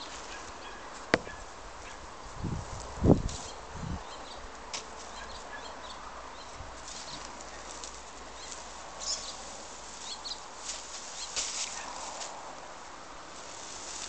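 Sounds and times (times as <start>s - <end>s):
bird chirps: 5.1s - 7.7s, 8.4s - 9.4s
straw thatch rustling and crackling: 6.6s - 14.0s.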